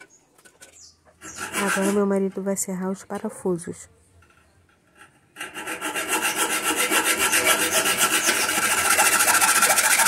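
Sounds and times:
hacksaw cutting a screw: 1.2 - 2.1, 5.0 - 10.0.

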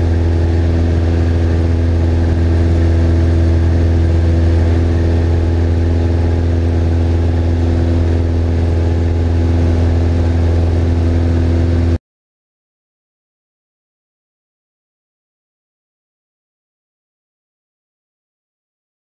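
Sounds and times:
airplane engine drone: 0.0 - 12.0.

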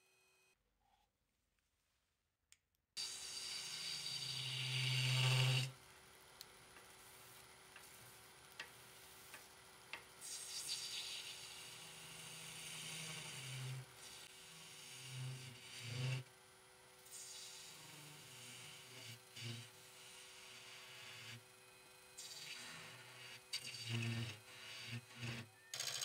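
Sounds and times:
gouge cutting wood on lathe: 3.2 - 5.7, 10.7 - 16.3, 17.7 - 19.7, 20.4 - 21.4, 22.4 - 25.5
steady lathe tone: 22.3 - 25.7.

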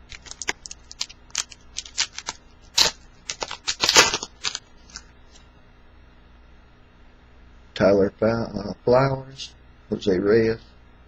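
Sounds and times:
trading cards snapping: 0.0 - 5.0
foil wrapper crinkling: 0.0 - 5.1.

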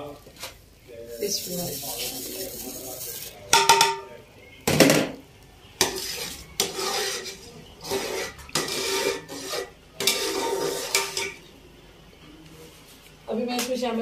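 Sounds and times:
metal ladle scraping pot: 5.8 - 11.4.

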